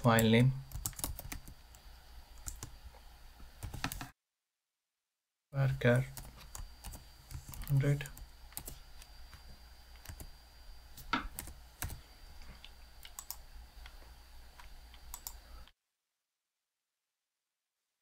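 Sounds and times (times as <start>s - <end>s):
computer keyboard keystrokes: 0.1s - 1.6s, 6.2s - 8.8s, 10.0s - 10.3s, 11.2s - 12.0s, 13.0s - 13.4s.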